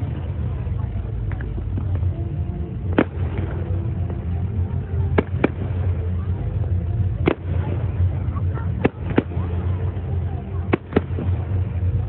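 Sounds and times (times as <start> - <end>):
low rumble: 0.0 - 12.0
fireworks bangs: 2.9 - 4.5, 5.1 - 6.2, 7.2 - 9.8.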